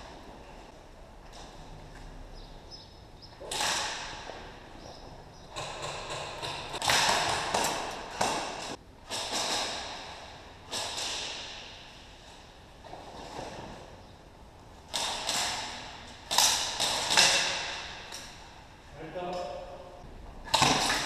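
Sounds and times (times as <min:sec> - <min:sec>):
airsoft gunfire echoing: 0:05.5 - 0:11.8, 0:14.9 - 0:18.4.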